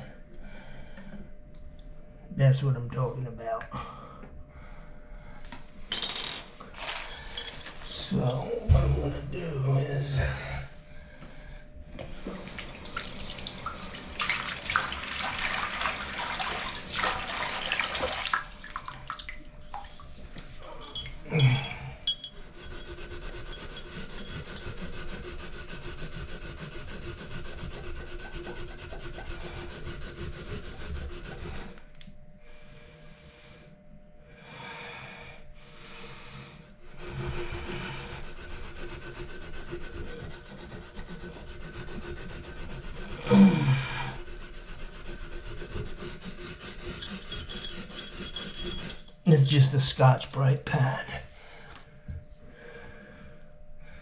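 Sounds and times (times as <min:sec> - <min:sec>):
scrubbing pad on metal spout: 0:12.2 - 0:31.9, 0:36.8 - 0:50.0.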